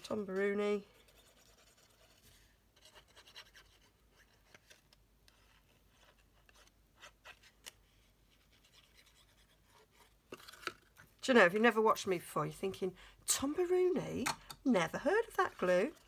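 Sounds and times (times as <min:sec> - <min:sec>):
cardstock scratching and rubbing: 0:00.1 - 0:10.7.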